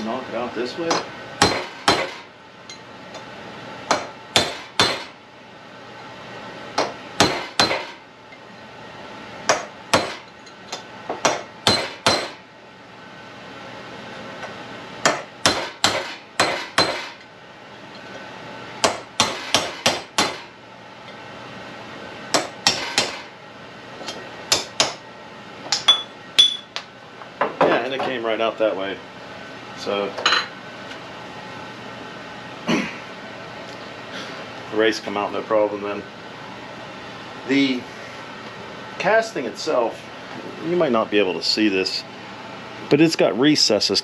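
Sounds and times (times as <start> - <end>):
hammer striking metal: 0.9 - 2.2, 3.9 - 5.1, 6.8 - 8.0, 9.5 - 10.2, 11.2 - 12.4, 15.0 - 17.2, 18.8 - 20.5, 22.3 - 23.3, 25.7 - 26.7.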